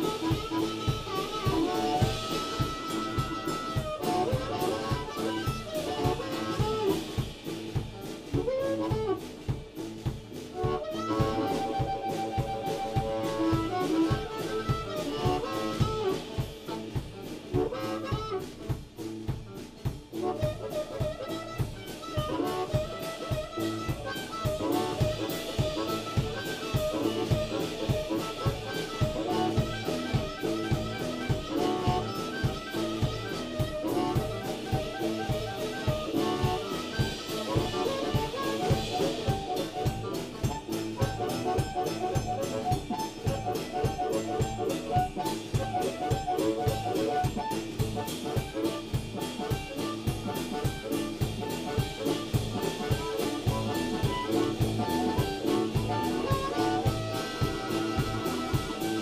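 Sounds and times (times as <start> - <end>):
electric bass: 0.0 - 45.8
drum kit steady beat: 0.0 - 59.0
electric guitar: 0.0 - 59.0
harmonica playing bent notes: 0.0 - 59.0.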